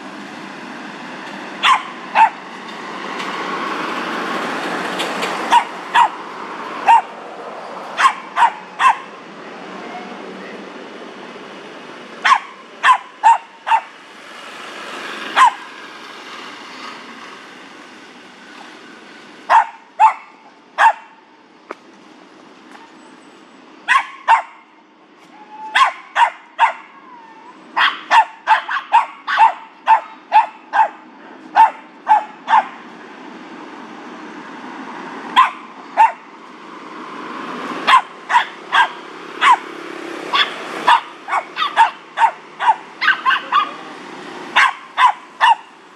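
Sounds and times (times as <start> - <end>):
small dog yapping: 1.6 - 2.4, 5.5 - 6.2, 6.8 - 7.1, 8.0 - 9.1, 12.2 - 13.9, 15.4 - 15.7, 23.9 - 24.6, 25.3 - 32.8, 35.4 - 36.2, 37.9 - 39.6, 40.3 - 43.9, 44.6 - 45.7.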